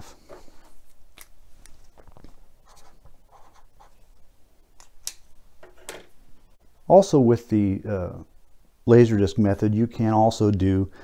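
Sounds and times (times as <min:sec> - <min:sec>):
pen scratching on paper: 0:02.6 - 0:04.1.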